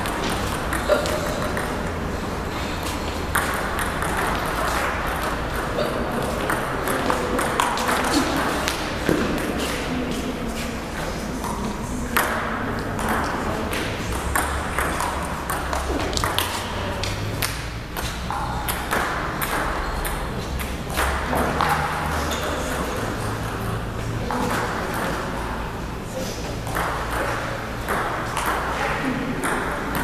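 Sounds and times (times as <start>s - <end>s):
table tennis balls clicking: 0.0s - 2.1s, 2.7s - 9.9s, 11.4s - 23.6s, 26.6s - 30.0s
faint voices: 0.0s - 19.4s.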